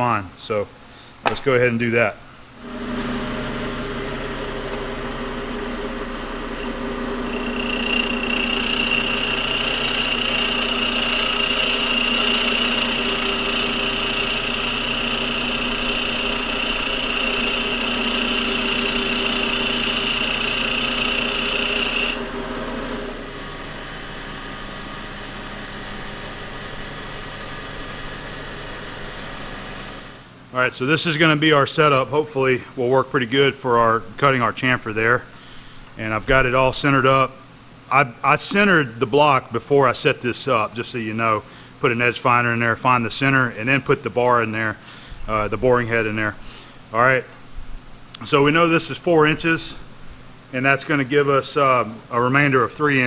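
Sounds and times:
bench grinder motor hum: 2.6s - 30.2s
high-pitched metal grinding: 6.6s - 22.3s.

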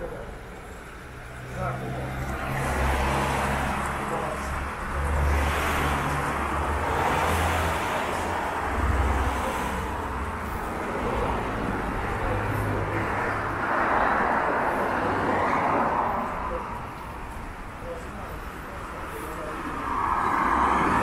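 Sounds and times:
broad rushing noise: 18.1s - 21.0s.

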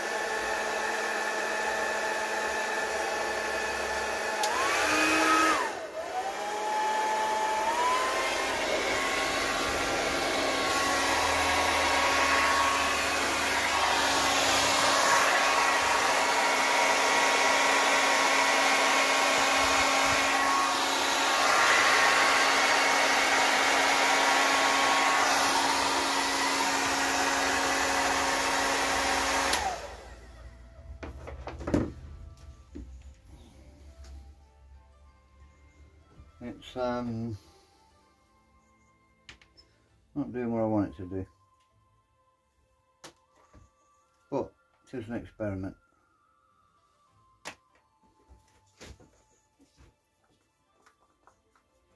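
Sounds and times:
hair dryer running: 0.0s - 34.2s.

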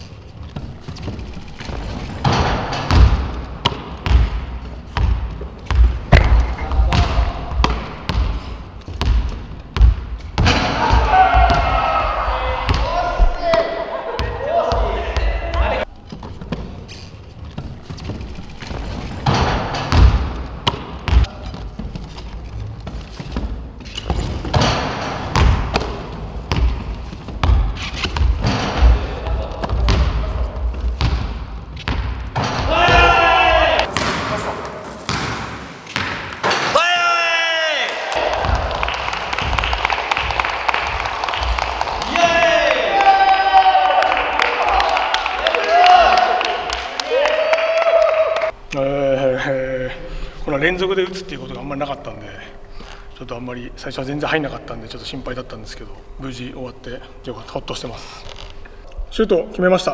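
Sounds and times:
basketballs bouncing on wooden floor: 0.0s - 16.8s, 17.5s - 34.4s, 35.1s - 36.7s, 38.2s - 42.1s.

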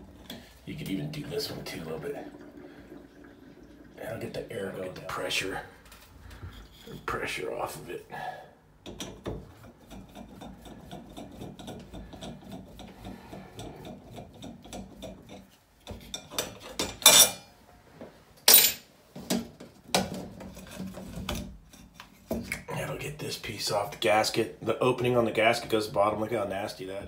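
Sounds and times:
metal plate scraping and knocking: 8.8s - 17.3s.

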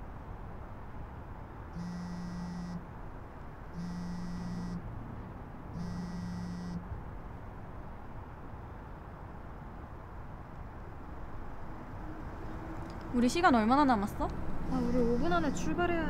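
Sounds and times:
steady background hiss: 0.0s - 16.0s
smartphone vibrating: 1.8s - 2.8s, 3.8s - 4.9s, 5.8s - 6.9s.

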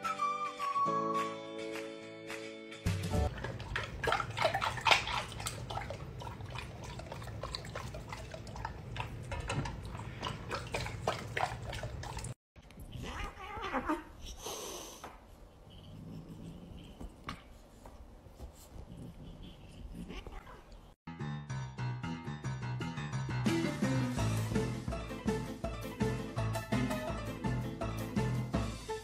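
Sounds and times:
dog lapping water from bowl: 3.3s - 12.4s
cat and dog tussling: 3.4s - 14.4s, 15.0s - 21.0s.

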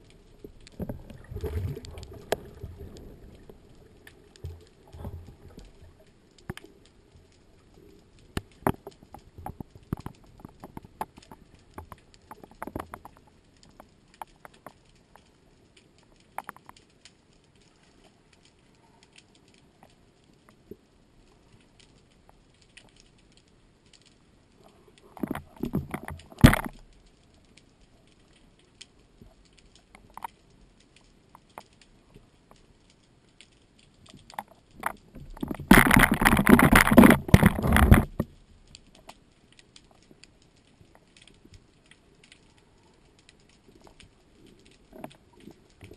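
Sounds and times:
underwater rushing noise: 0.0s - 10.8s, 34.3s - 38.4s
faint underwater clicks and crackles: 0.0s - 45.9s.

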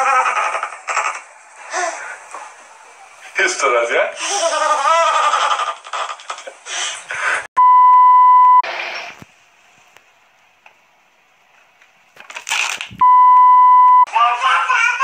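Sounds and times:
electronic bleep: 13.0s - 14.1s.

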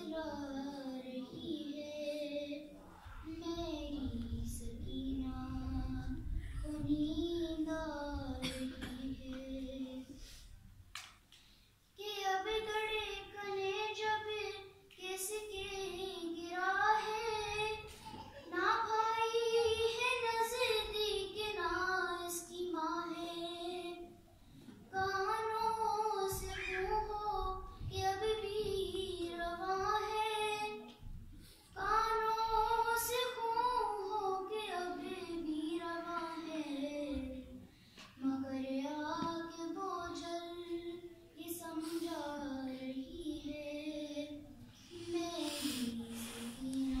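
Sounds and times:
singer breathing: 10.1s - 10.6s, 37.6s - 38.2s, 41.7s - 42.4s, 44.7s - 47.0s.

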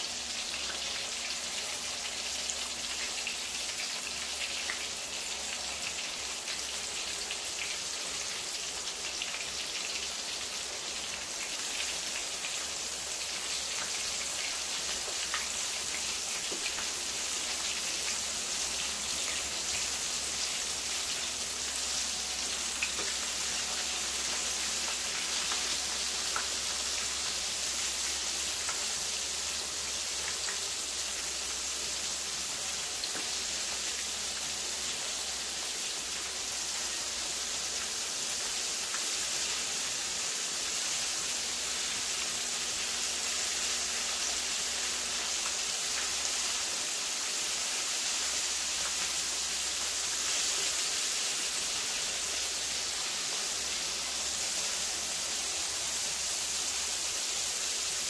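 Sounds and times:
chicken frying in hot oil: 0.0s - 58.0s.

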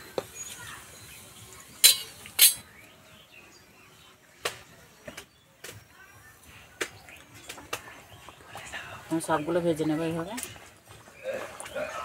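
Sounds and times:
steel utensils clinking: 1.8s - 2.7s.

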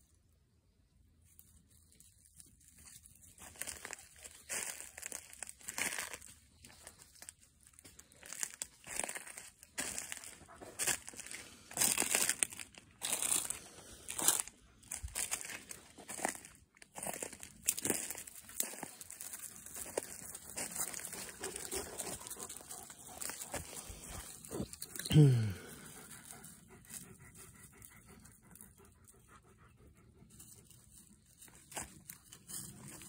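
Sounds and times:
dry leaves crunching: 1.2s - 25.9s, 30.6s - 33.0s.

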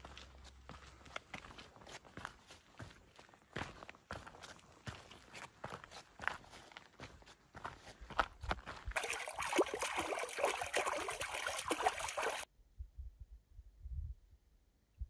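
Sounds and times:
footsteps on gravel: 0.0s - 12.4s
water splashing around feet: 9.0s - 12.5s
faint low rumble: 12.5s - 15.0s.

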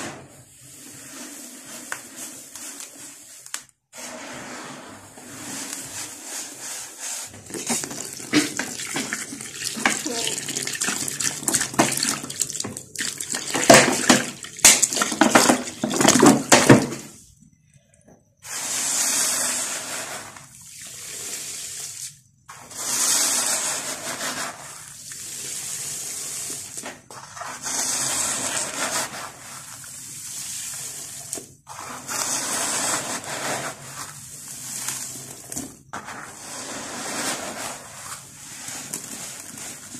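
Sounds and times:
dirt pouring into water: 7.3s - 16.2s.

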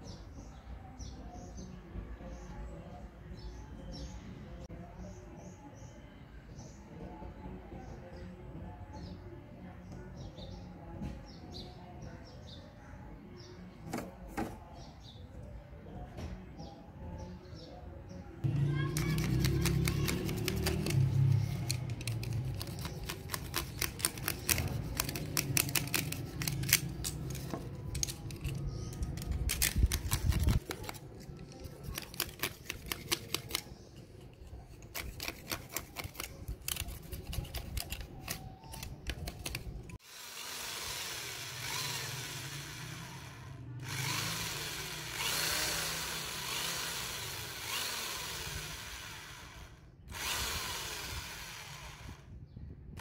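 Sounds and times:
electric drill boring plastic pipe: 40.0s - 52.3s.

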